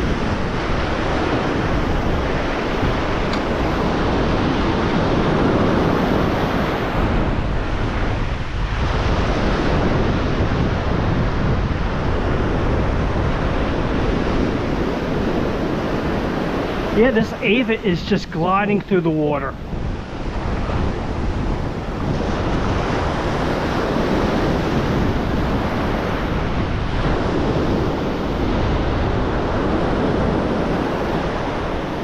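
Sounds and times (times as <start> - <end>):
ocean surf breaking on beach: 0.0 - 32.0
wind buffeting microphone: 0.0 - 32.0.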